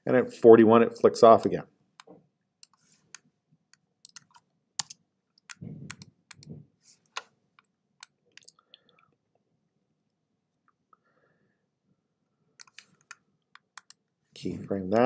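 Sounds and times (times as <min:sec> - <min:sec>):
computer mouse clicks: 0:02.0 - 0:08.6, 0:12.6 - 0:14.0
keyboard key presses: 0:04.0 - 0:07.3.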